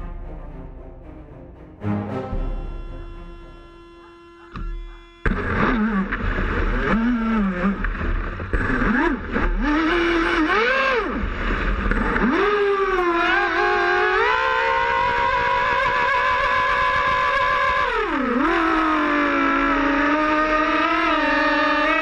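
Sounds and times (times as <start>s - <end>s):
music: 0.0s - 5.6s
electric boat motors whining: 2.4s - 22.0s
water and wind noise: 5.4s - 22.0s.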